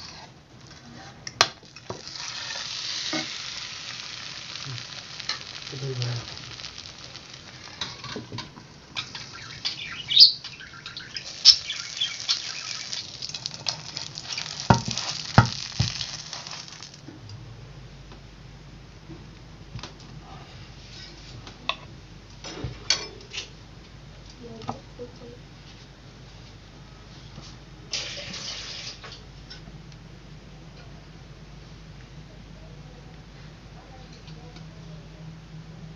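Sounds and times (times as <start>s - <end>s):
omelette sizzling in frying pan: 0.0s - 17.1s, 27.9s - 29.2s.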